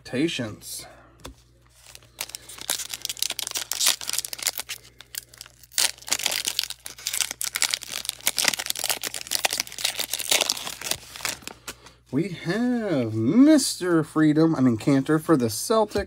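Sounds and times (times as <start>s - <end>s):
foil wrapper crinkling: 1.7s - 11.8s.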